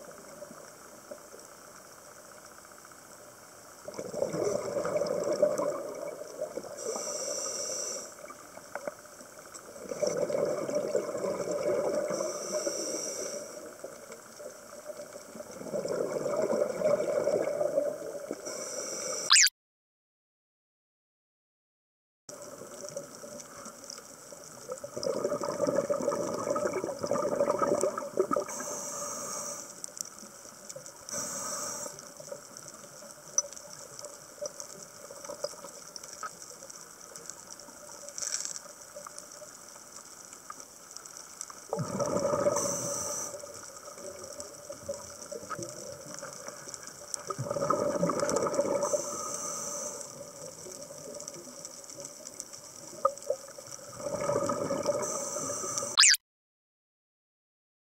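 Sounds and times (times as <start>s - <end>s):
exhaled bubbles underwater: 3.8s - 6.9s, 9.7s - 12.4s, 13.6s - 18.4s, 24.4s - 28.6s, 41.6s - 49.5s, 50.1s - 56.1s.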